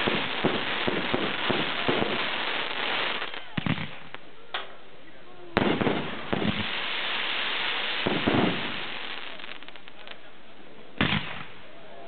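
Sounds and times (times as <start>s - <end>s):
fireworks hissing: 0.0s - 4.2s, 5.6s - 10.3s
fireworks bangs: 0.0s - 4.7s, 5.5s - 10.3s, 11.0s - 11.8s
fireworks crackling: 0.0s - 4.8s, 5.4s - 12.0s.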